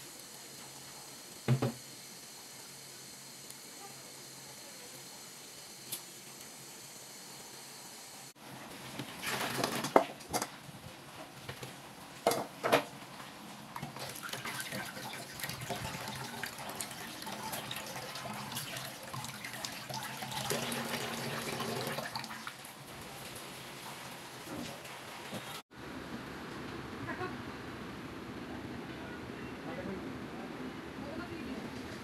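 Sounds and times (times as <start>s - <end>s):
tap water splashing: 1.5s - 1.8s.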